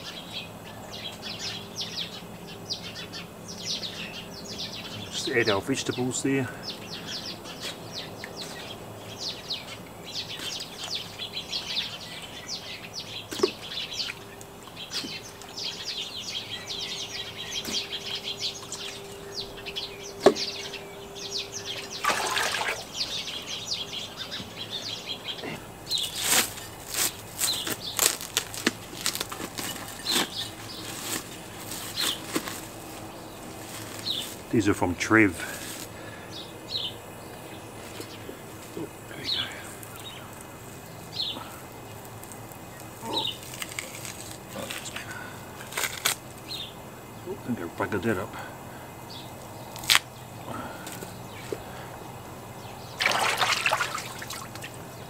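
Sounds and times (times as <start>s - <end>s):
faint steady hum: 0.0s - 55.0s
small birds chirping: 0.0s - 55.0s
plastic bag crinkling: 26.0s - 34.5s, 43.3s - 45.0s.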